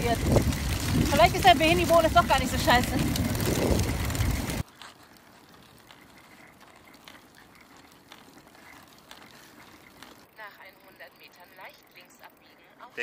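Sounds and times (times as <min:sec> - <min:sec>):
wind rumble on microphone: 0:00.0 - 0:04.6
chain drive rolling and clicking: 0:00.0 - 0:12.5.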